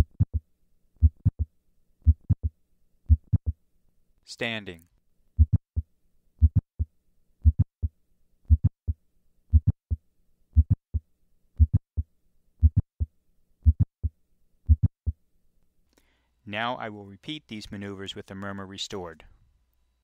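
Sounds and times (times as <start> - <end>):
heartbeat with mid-systolic click: 0.0 - 0.4, 1.0 - 3.6, 5.4 - 10.0, 10.6 - 11.0, 11.6 - 15.2.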